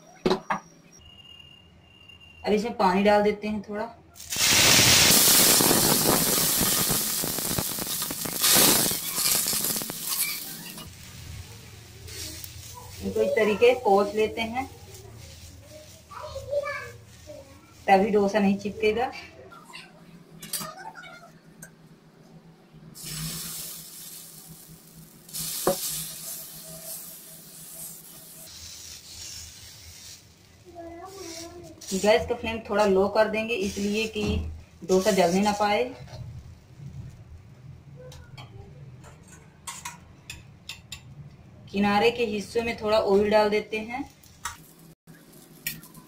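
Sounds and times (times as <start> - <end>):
water sizzling on hot griddle: 4.2 - 18.7, 23.0 - 37.2, 42.6 - 46.0.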